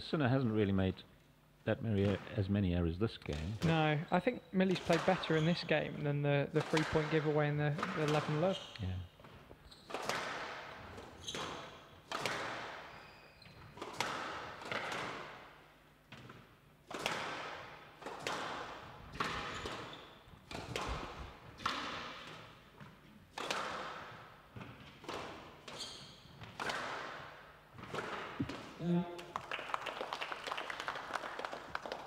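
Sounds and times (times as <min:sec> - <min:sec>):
squash ball thwacks echoing: 0:04.7 - 0:08.6, 0:09.9 - 0:12.9, 0:13.7 - 0:22.6, 0:23.3 - 0:25.8, 0:26.4 - 0:29.3.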